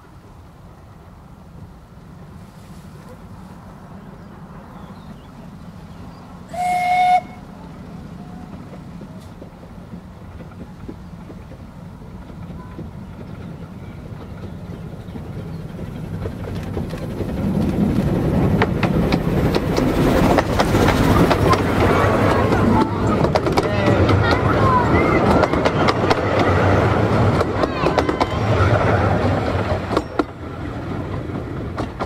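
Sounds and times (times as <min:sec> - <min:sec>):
train running noise: 0:00.0 - 0:32.0
steam locomotive whistle: 0:06.5 - 0:07.5.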